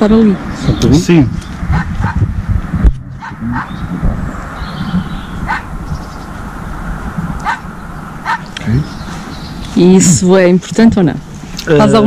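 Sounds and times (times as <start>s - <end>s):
microphone rubbing and knocks: 0.6s - 7.7s.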